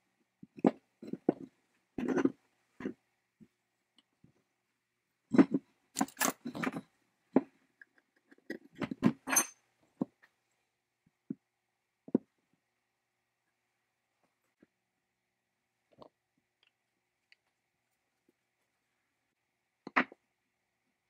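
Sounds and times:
metal parts knocking and clinking: 5.4 - 6.8, 7.8 - 9.6
steel rod worked out of housing: 6.0 - 6.7.

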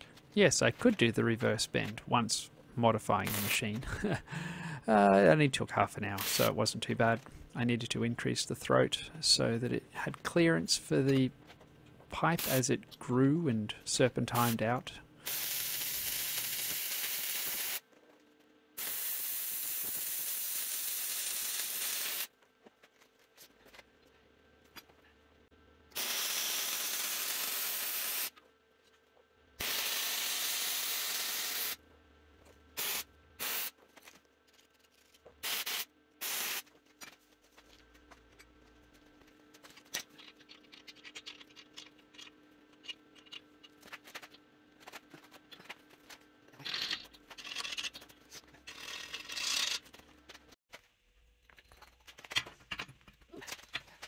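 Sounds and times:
short welding tacks: 6.2 - 6.6, 15.3 - 17.8, 18.8 - 22.3, 26.0 - 28.4, 29.6 - 31.8
welder arc buzzing: 15.3 - 17.8, 18.8 - 22.3, 25.9 - 28.4, 29.6 - 31.8, 35.4 - 36.6.

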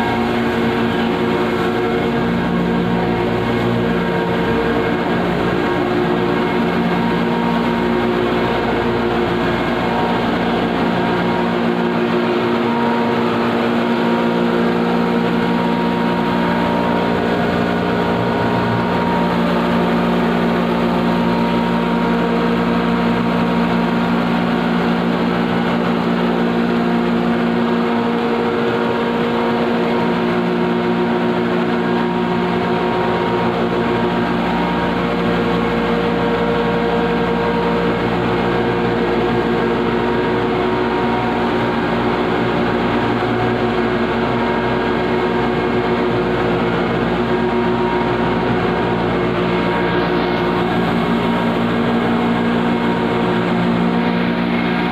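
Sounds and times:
grinding machinery drone: 0.0 - 54.9.

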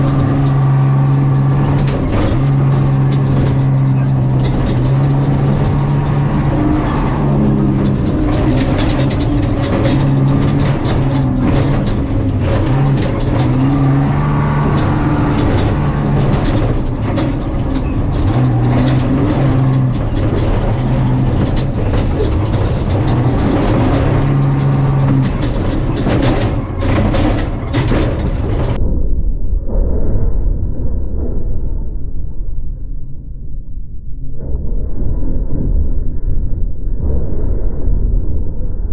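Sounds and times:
body and suspension rattling: 0.0 - 28.8
engine running under load: 0.0 - 28.8.

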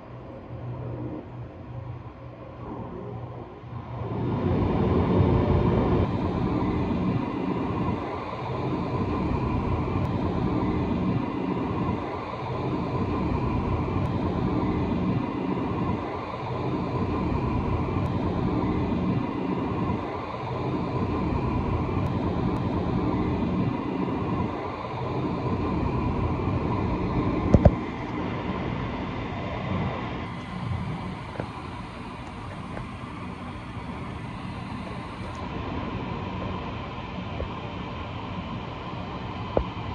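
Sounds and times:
car wash blowers rushing air: 3.9 - 39.9.

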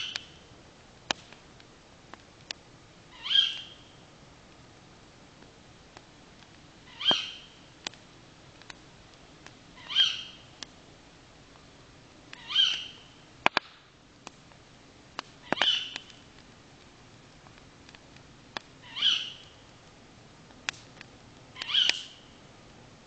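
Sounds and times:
campfire popping and crackling: 0.0 - 23.0
night animal high call: 6.9 - 7.5, 9.8 - 10.4, 18.8 - 19.4.

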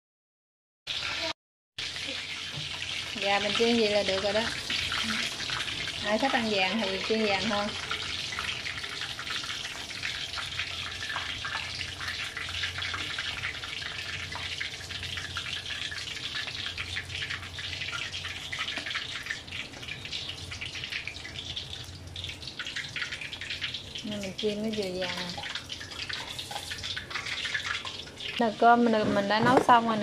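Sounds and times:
chicken deep-frying in oil: 0.9 - 30.0.

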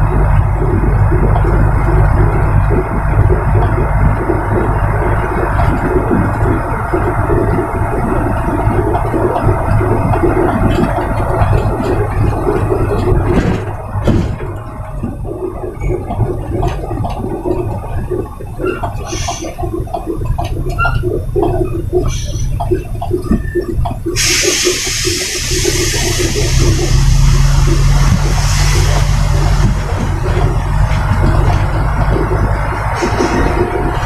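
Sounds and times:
diesel engine rumbling: 0.0 - 34.0
rattling in truck cab: 0.0 - 34.0
loud steady hiss: 24.2 - 29.4.

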